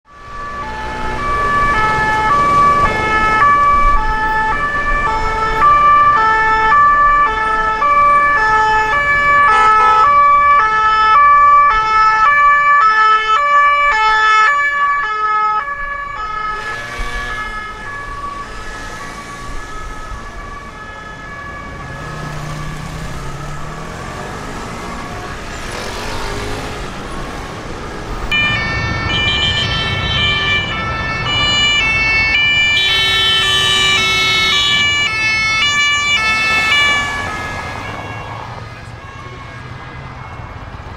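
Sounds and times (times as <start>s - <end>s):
city traffic noise: 0.0s - 40.9s
second siren: 0.1s - 26.8s, 27.9s - 40.9s
two-tone police siren: 0.1s - 40.9s
vehicle engine revving: 16.4s - 29.3s.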